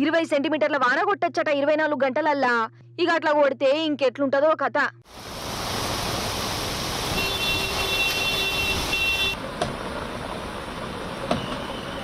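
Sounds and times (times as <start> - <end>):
rushing water noise: 5.1 - 12.0.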